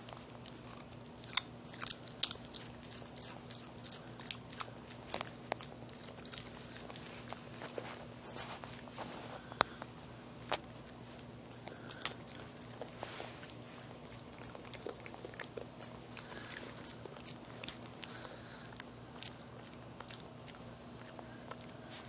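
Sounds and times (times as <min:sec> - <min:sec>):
dog chewing carrot: 0:00.0 - 0:22.0.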